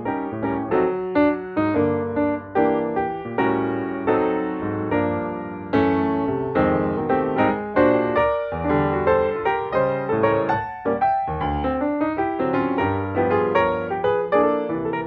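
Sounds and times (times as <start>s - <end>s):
piano melody: 0.0s - 15.0s.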